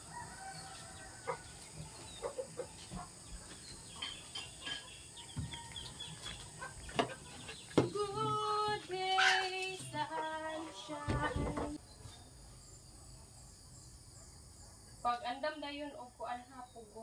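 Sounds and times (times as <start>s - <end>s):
chickens clucking: 1.2s - 11.8s.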